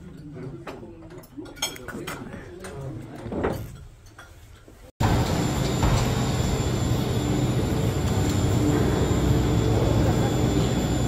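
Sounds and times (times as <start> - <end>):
gondola machinery rumble and hum: 5.0 - 11.0.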